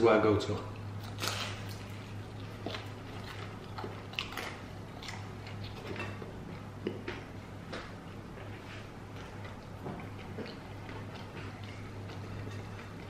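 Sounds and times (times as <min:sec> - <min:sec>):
crunching fried food being chewed: 0:00.7 - 0:13.0.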